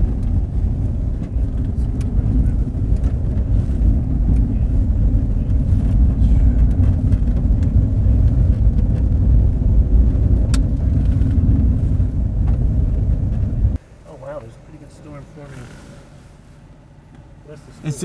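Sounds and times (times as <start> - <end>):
car road and engine rumble: 0.0 - 18.0
sharp tick: 10.5 - 10.7.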